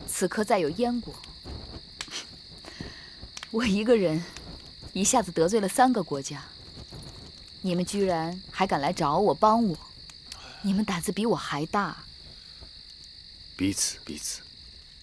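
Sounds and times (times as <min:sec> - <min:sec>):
crickets chirping: 0:00.0 - 0:15.0
woman speaking: 0:00.1 - 0:01.2, 0:03.5 - 0:06.5, 0:07.6 - 0:09.8, 0:10.6 - 0:12.0.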